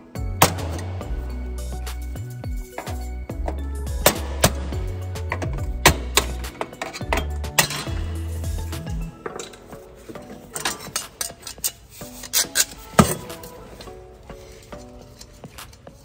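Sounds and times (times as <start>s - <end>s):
background music with bass: 0.0s - 16.0s.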